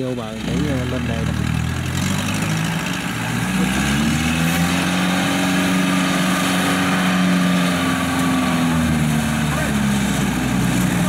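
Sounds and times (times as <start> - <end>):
combine harvester diesel engine: 0.0 - 11.0.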